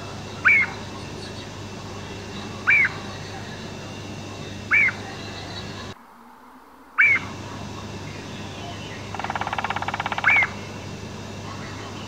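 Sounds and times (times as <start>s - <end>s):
low hum and hiss: 0.0s - 12.0s
woodpecker calling: 0.4s - 3.8s, 4.6s - 6.0s, 6.9s - 10.9s.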